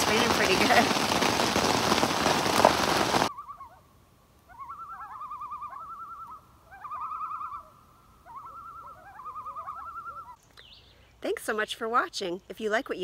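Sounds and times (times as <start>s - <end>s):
heavy rain pounding on a tent: 0.0s - 3.3s
loons calling: 4.5s - 10.4s.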